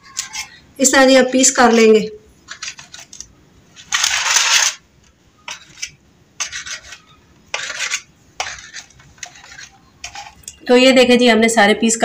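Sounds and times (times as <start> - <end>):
knife scraping on metal tray: 0.0 - 0.6, 1.5 - 3.2, 5.4 - 10.6.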